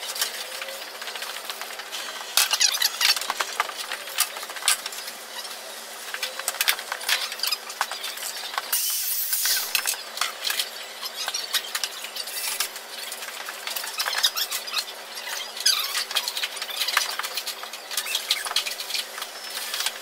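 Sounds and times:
short hissing rush: 8.7s - 9.8s.

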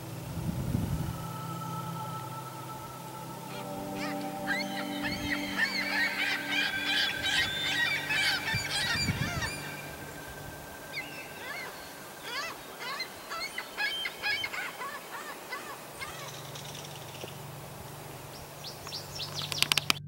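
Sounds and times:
flock of birds calling: 3.4s - 17.3s.

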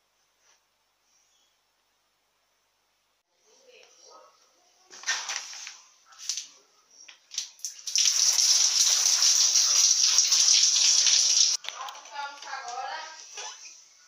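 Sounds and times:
shower water spraying: 7.6s - 11.6s.

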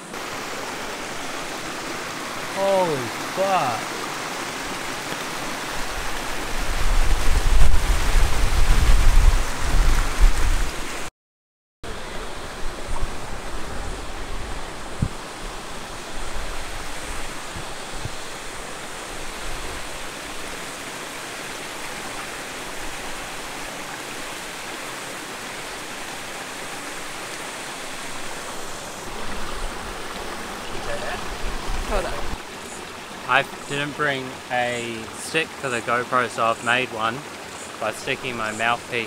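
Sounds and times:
waterfall rushing: 0.0s - 11.1s, 11.9s - 39.0s.

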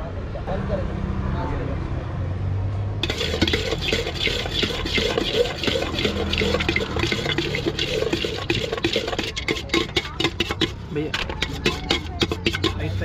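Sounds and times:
food mixed in a steel pot: 3.0s - 13.0s.

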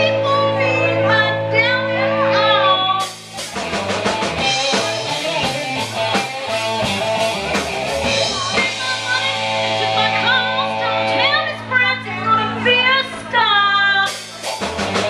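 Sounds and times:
electric guitar: 0.0s - 15.0s
drum kit with snare and cymbals: 2.9s - 10.4s, 14.0s - 15.0s.

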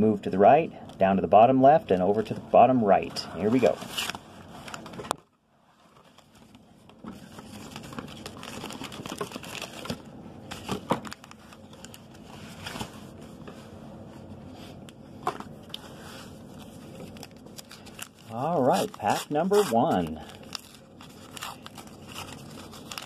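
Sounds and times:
foil packs crinkling: 6.0s - 12.9s, 16.5s - 23.0s.

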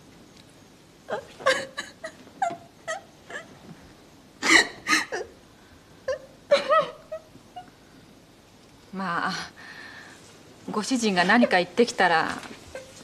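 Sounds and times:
woman sobbing: 1.1s - 3.6s, 4.4s - 5.4s, 6.0s - 7.7s.

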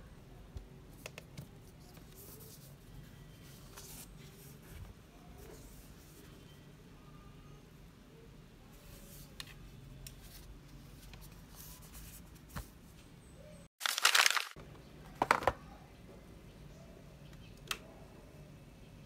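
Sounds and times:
loud crinkling rustle: 13.8s - 14.6s.

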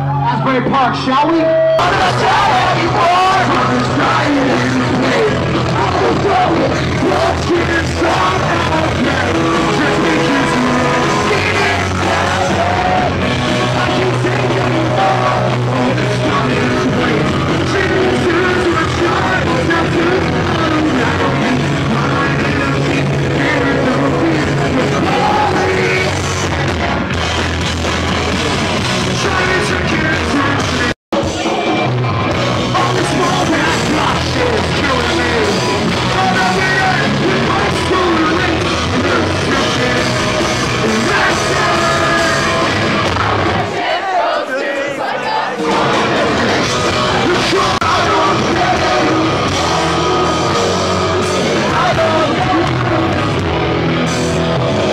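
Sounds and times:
person singing and yelling: 0.0s - 26.6s, 32.6s - 54.9s
punk rock band playing live: 0.0s - 44.1s, 45.3s - 54.9s.

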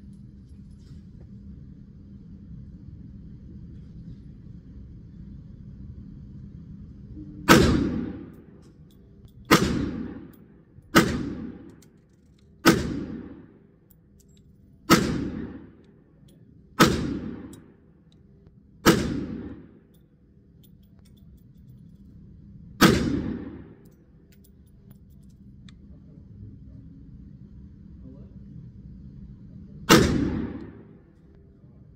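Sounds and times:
pistol shots indoors: 7.4s - 18.2s, 18.8s - 20.0s, 22.7s - 24.5s, 29.8s - 31.2s.

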